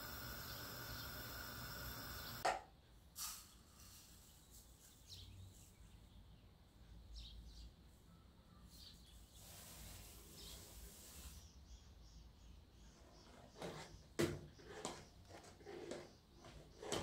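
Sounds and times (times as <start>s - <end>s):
faint high chirps: 0.0s - 2.4s.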